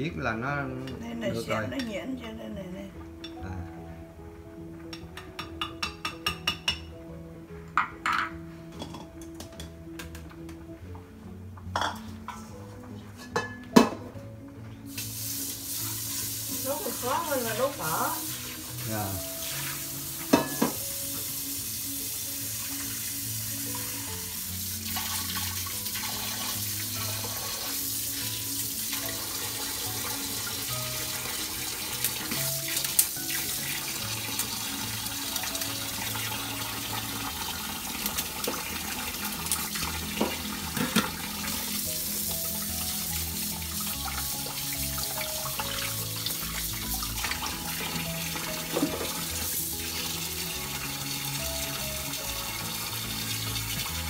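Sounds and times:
soft background music: 0:00.0 - 0:54.0
metallic knocks of pan: 0:07.8 - 0:09.7
tap running into sink: 0:20.2 - 0:21.2, 0:37.3 - 0:41.6, 0:46.8 - 0:49.3.

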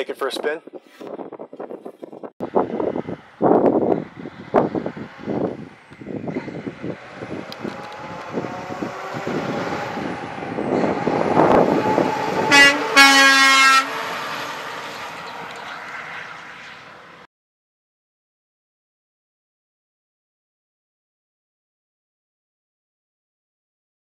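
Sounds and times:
wind gusts on microphone: 0:00.0 - 0:17.0
truck engine driving past: 0:02.4 - 0:17.3
truck horn: 0:10.6 - 0:15.1.

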